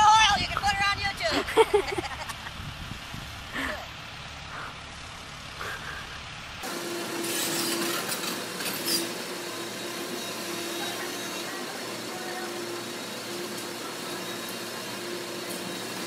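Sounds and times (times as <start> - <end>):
low outdoor rumble: 0.0 - 6.7
excavator engine humming: 0.0 - 16.0.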